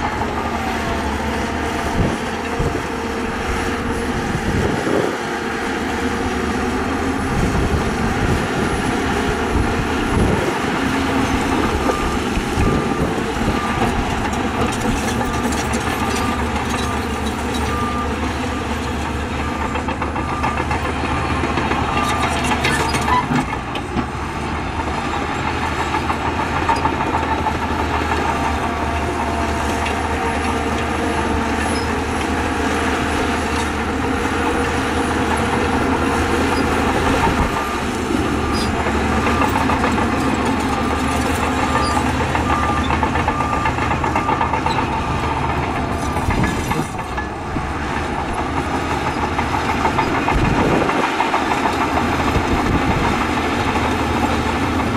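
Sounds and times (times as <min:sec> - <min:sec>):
diesel machinery engine drone: 0:00.0 - 0:54.9
reversing alarm beeping: 0:09.4 - 0:23.2, 0:27.5 - 0:47.4.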